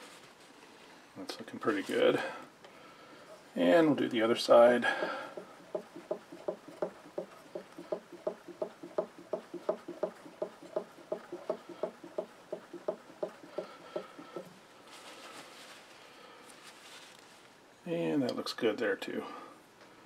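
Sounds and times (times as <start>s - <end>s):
cloth rustling: 13.5s - 17.6s.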